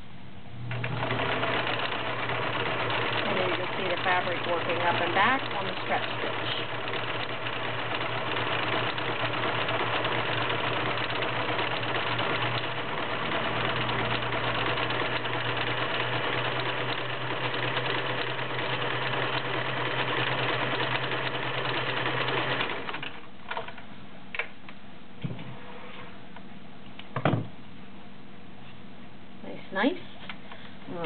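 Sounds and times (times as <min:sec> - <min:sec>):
sewing machine running: 0:00.7 - 0:23.7.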